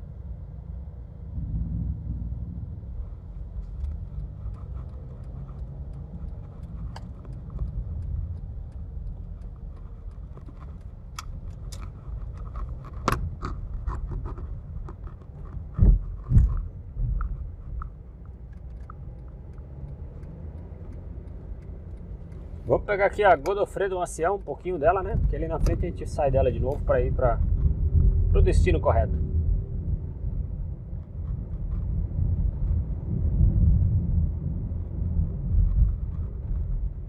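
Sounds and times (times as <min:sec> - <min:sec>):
road and engine rumble: 0:00.0 - 0:37.0
light clicking and rattling: 0:03.4 - 0:27.7.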